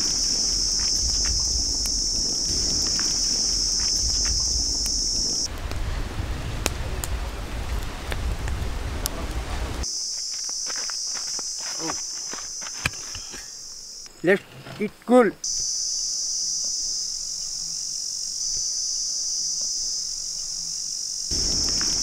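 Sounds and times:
high insect drone: 0.0s - 5.5s, 9.8s - 22.0s
hiss: 0.0s - 5.5s, 15.4s - 22.0s
low rumble: 0.0s - 9.8s, 21.3s - 22.0s.

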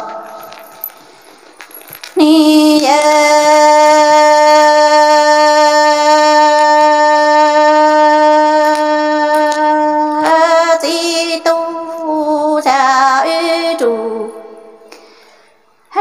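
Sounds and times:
woman singing unaccompanied: 2.2s - 14.8s.

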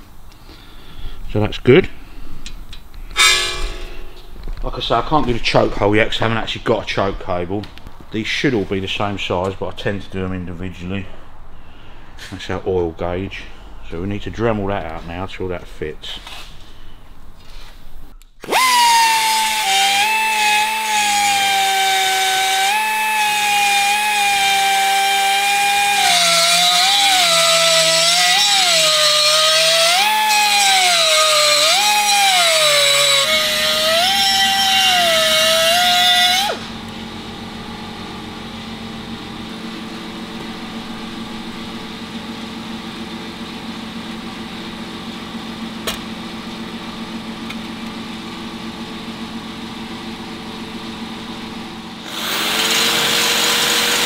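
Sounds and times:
rotary tool grinding metal: 3.1s - 4.2s, 18.4s - 36.7s, 52.1s - 54.0s.

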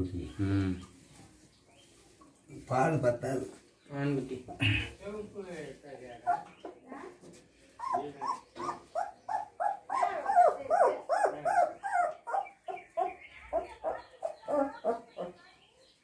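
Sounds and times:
puppies yelping and whining: 7.8s - 15.4s.

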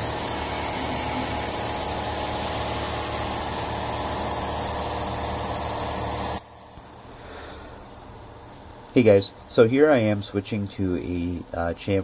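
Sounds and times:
coolant spraying: 0.0s - 6.4s
milling machine cutting metal: 0.0s - 6.4s.

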